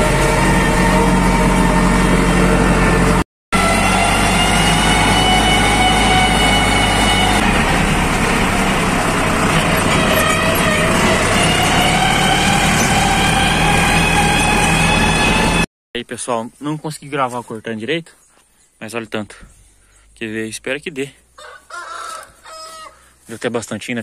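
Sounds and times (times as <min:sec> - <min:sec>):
tractor diesel engine running: 0:00.0 - 0:15.7.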